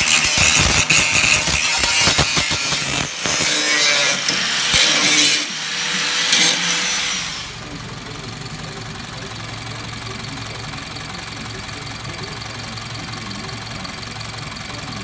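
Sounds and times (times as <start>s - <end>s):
angle grinder cutting steel: 0.0s - 7.6s
car engine idling: 7.2s - 15.0s.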